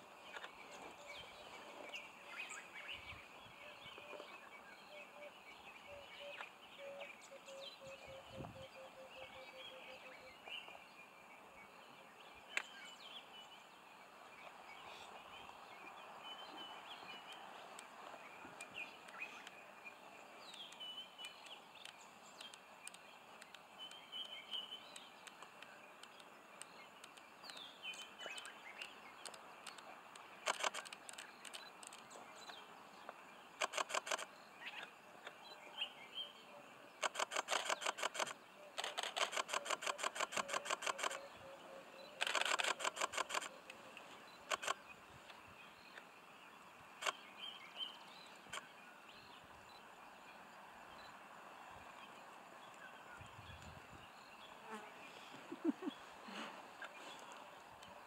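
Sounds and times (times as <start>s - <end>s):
birds chirping: 0.2s - 58.0s
sharp clicks: 20.5s - 32.1s, 33.6s - 34.3s, 37.0s - 41.2s, 42.2s - 43.8s, 44.4s - 44.8s, 47.0s - 47.2s.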